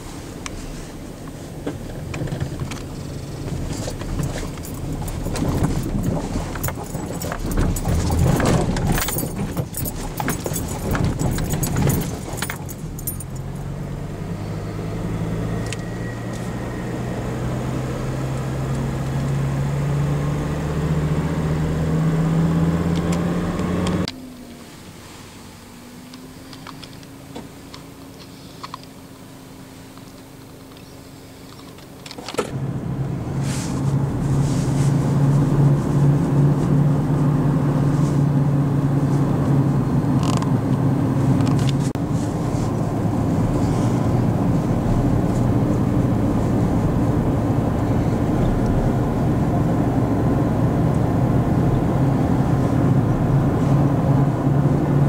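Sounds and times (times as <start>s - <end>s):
steady cabin hum: 0.0s - 14.1s
rattling and clattering in car: 0.0s - 14.2s, 30.2s - 32.6s, 33.3s - 55.0s
car engine accelerating: 0.0s - 55.0s.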